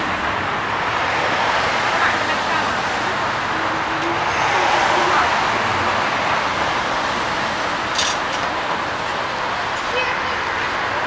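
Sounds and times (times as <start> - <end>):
cars passing on street: 0.0 - 11.0.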